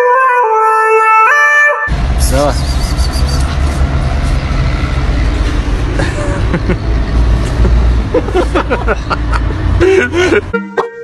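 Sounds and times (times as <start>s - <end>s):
street traffic rumble: 1.9s - 10.6s.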